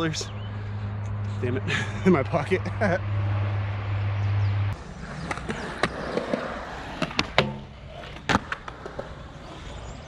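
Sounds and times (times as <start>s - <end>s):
skateboard wheels rolling on concrete: 2.2s - 10.0s.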